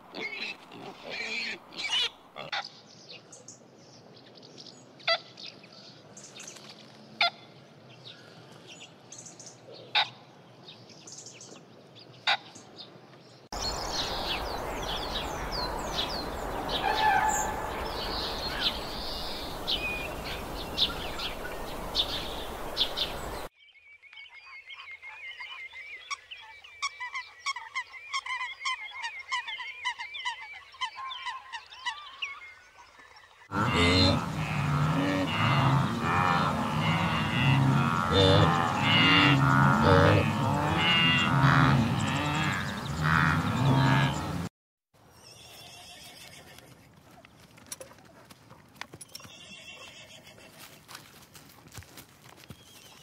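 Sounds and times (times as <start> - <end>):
steady rushing noise: 13.6 - 23.4
swamphen honking calls: 13.6 - 23.5, 33.5 - 44.5
pigs grunting: 33.5 - 44.5.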